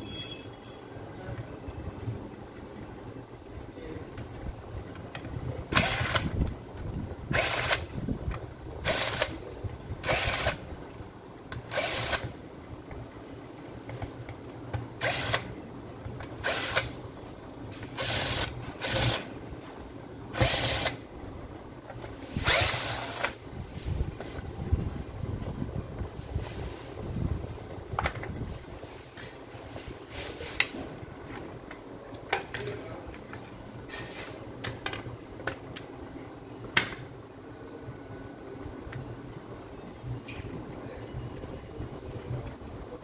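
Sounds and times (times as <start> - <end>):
cordless drill motor bursts: 5.7 - 6.4, 7.3 - 7.9, 8.8 - 9.4, 10.0 - 10.6, 11.7 - 12.3, 15.0 - 15.6, 16.4 - 17.0, 18.0 - 19.3, 20.3 - 21.0, 22.4 - 23.4.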